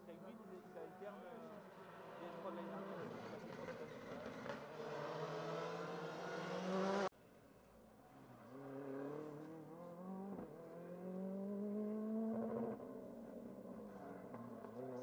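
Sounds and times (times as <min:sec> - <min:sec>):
rally car engine revving: 0:02.2 - 0:07.1, 0:08.5 - 0:15.0.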